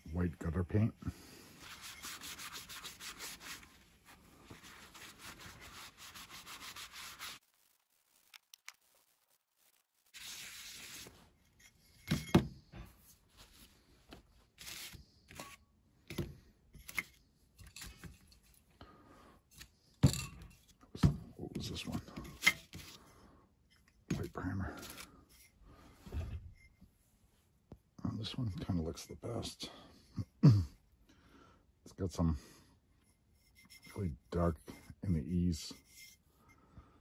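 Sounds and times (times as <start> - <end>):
cloth scrubbing ceramic tile: 1.6 - 7.4, 10.1 - 11.8.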